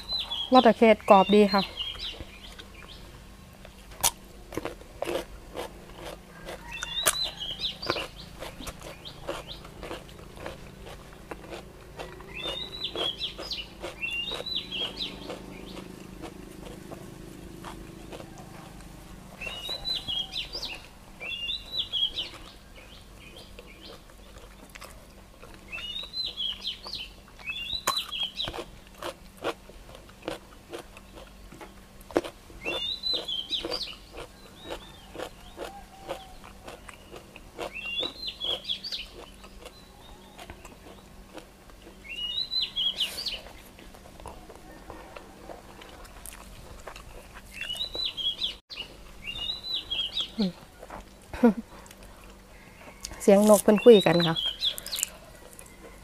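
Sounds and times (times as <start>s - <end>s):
crunching and chewing food: 0.0s - 56.0s
bird calling: 12.0s - 24.0s, 47.5s - 56.0s.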